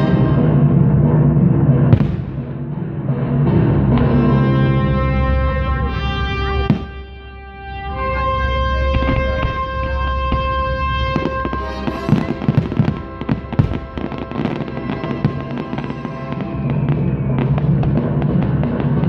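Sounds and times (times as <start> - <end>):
fireworks bangs and crackling: 0.0 - 19.0
music: 0.0 - 19.0.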